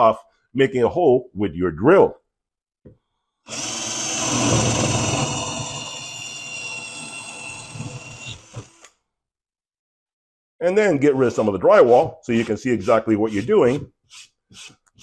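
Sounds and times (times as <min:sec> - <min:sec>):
cordless drill boring drywall: 0:03.4 - 0:09.0.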